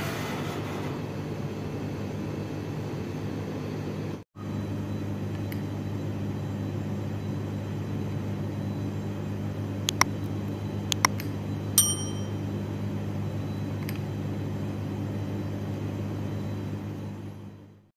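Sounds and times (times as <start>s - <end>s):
steady low hum: 1.0s - 17.6s
metal spoon clinking on ceramic bowl: 11.8s - 12.4s.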